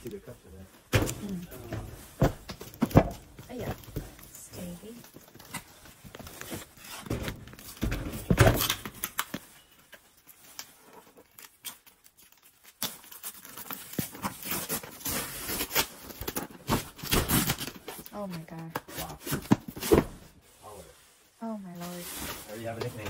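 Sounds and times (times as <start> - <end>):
cardboard boxes rustling and scraping: 0.5 - 11.3, 13.4 - 23.0
packing tape peeling: 8.5 - 19.8.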